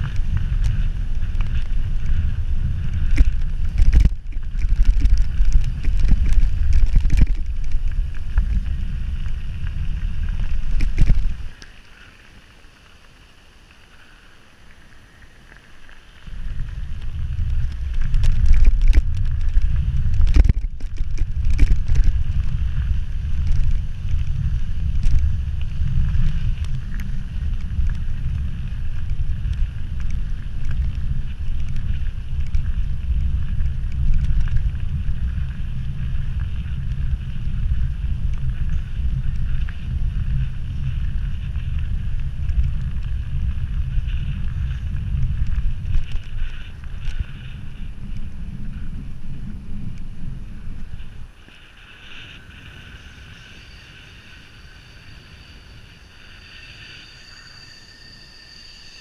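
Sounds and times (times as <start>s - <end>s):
wind rumbling on microphone: 0.0s - 59.0s.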